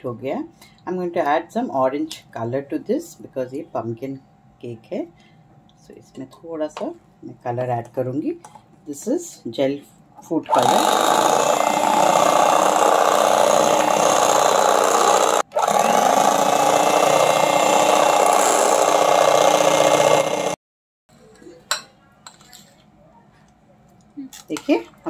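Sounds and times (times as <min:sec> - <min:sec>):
electric hand mixer whipping: 0:10.5 - 0:20.6.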